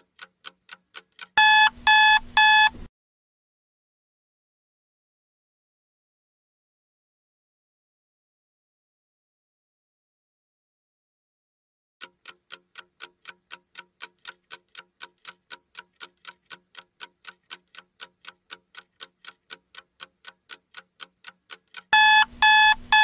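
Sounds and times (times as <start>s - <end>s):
clock ticking: 0.0s - 2.9s, 12.0s - 23.0s
loud electronic beeps: 1.4s - 2.8s, 22.0s - 23.0s.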